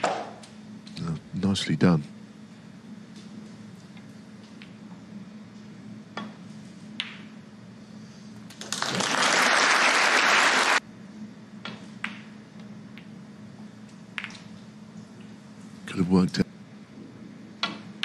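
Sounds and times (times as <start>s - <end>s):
snooker cue striking ball: 7.0s - 7.3s
snooker balls clicking: 7.0s - 7.4s, 14.1s - 14.6s
audience applause: 8.6s - 10.8s.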